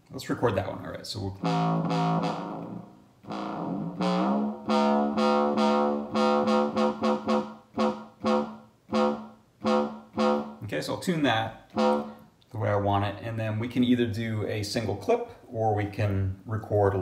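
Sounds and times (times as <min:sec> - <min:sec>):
buzzy synth tone: 0:01.3 - 0:10.9, 0:11.7 - 0:12.2
short repeated synth notes: 0:01.4 - 0:10.7, 0:11.7 - 0:12.3.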